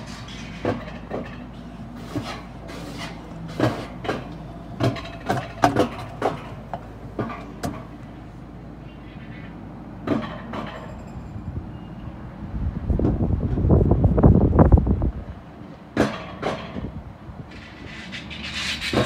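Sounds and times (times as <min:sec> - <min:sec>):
sled clunking and rattling: 0:00.0 - 0:08.0
wheels rumbling on rails: 0:00.0 - 0:19.0.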